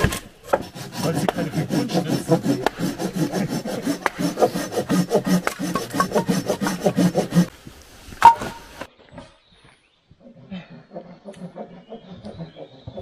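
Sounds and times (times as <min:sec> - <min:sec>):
hand saw cutting wood: 0:00.0 - 0:07.5.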